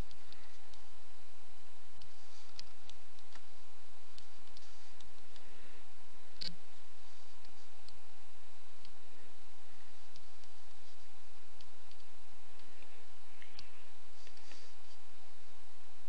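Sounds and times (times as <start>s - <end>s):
low hum and hiss: 0.0s - 16.0s.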